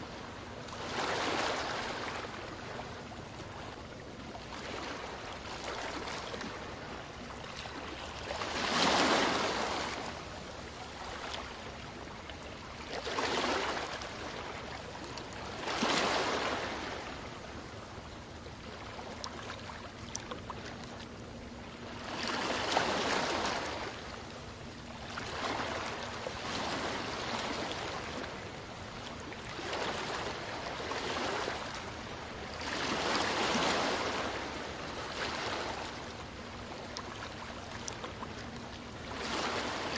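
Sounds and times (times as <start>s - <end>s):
small waves washing onto beach: 4.4s - 17.8s, 24.9s - 39.9s.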